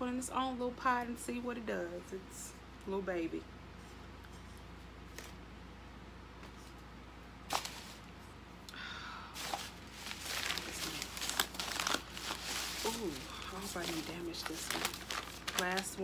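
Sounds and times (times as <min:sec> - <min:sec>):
low room hum: 0:00.0 - 0:16.0
packing paper rustling: 0:07.5 - 0:08.1, 0:09.4 - 0:16.0.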